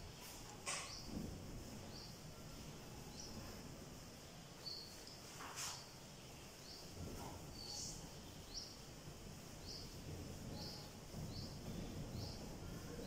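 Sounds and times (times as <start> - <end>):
bird chirping: 1.8 - 3.5, 4.2 - 8.9, 9.5 - 13.0.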